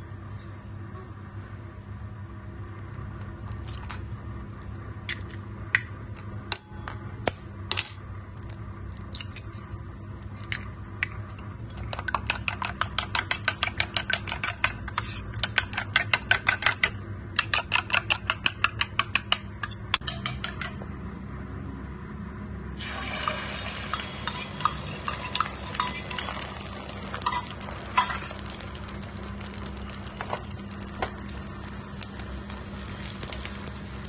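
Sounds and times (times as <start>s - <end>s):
spoon beating eggs clinking: 11.7s - 20.8s, 23.1s - 28.5s.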